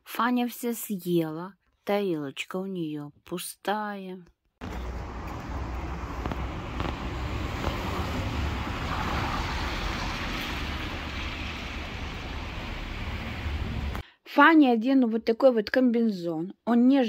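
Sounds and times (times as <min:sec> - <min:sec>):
traffic hiss: 0:04.6 - 0:14.0
wind rumbling on microphone: 0:04.6 - 0:14.0.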